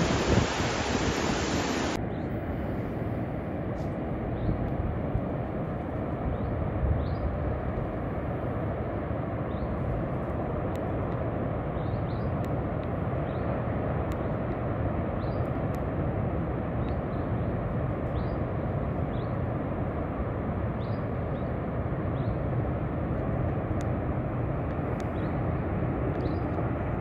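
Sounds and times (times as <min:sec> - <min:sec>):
ocean surf washing in: 0:00.0 - 0:02.0
distant surf rumble: 0:00.0 - 0:27.0.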